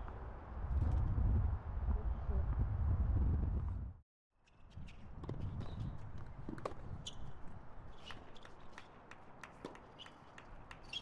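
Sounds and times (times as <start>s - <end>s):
tennis ball bouncing on court: 7.9s - 11.0s.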